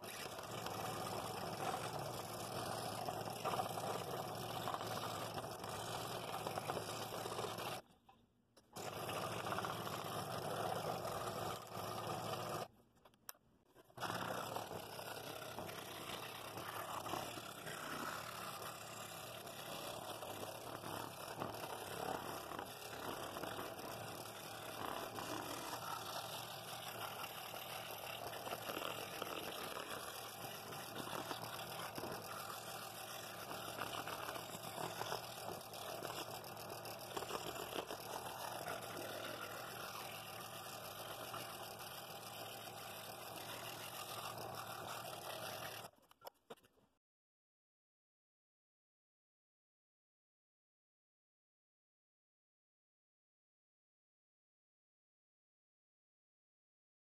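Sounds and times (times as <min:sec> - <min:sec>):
scroll saw cutting wood: 0:00.0 - 0:07.9, 0:08.6 - 0:12.7, 0:13.7 - 0:46.6.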